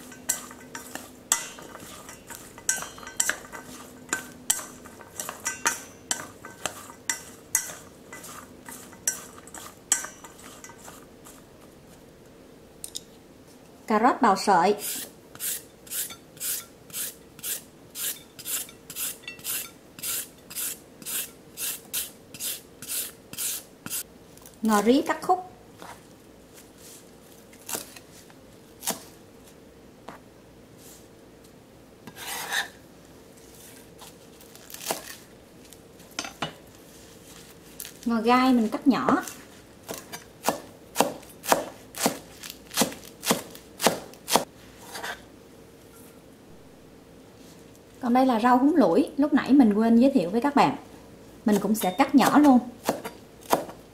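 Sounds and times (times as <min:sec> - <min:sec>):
carrot rasping on a grater: 0:14.8 - 0:24.0, 0:32.1 - 0:32.7
knife chopping on plastic board: 0:39.9 - 0:44.5, 0:52.2 - 0:53.8.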